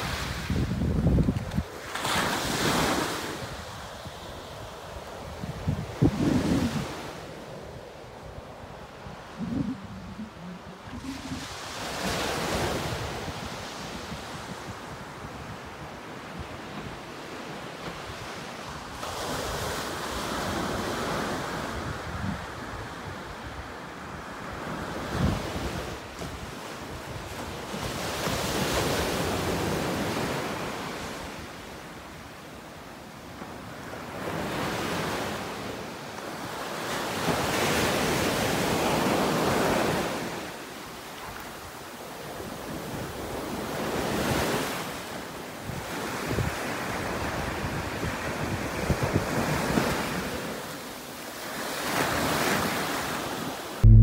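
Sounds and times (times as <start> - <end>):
wind buffeting microphone: 0.0 - 1.8, 3.4 - 7.2, 8.3 - 15.8
surf breaking on beach: 0.0 - 3.7.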